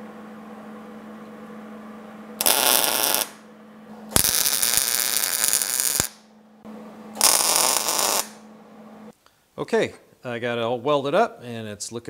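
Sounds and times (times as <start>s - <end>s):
steady hum: 0.0s - 9.6s
welder arc crackling: 2.4s - 3.4s, 4.1s - 6.2s, 7.2s - 8.4s.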